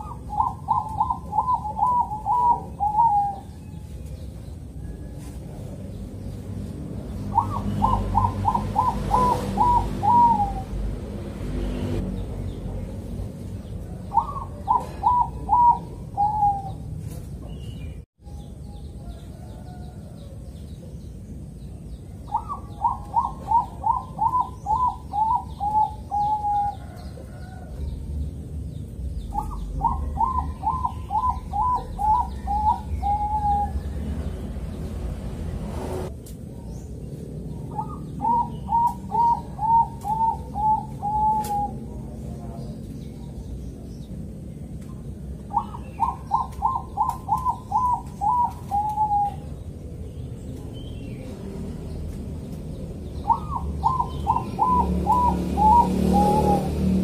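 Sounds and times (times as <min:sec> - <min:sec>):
dove cooing: 0:00.0 - 0:04.0, 0:07.3 - 0:11.0, 0:13.8 - 0:17.2, 0:22.3 - 0:27.9, 0:29.3 - 0:34.3, 0:37.6 - 0:42.6, 0:45.4 - 0:50.0, 0:52.8 - 0:57.0.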